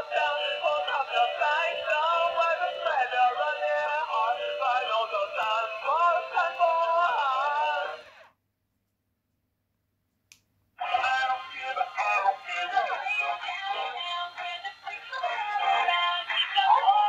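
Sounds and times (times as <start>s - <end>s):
toy singing through small speaker: 0.0s - 8.1s, 10.8s - 17.0s.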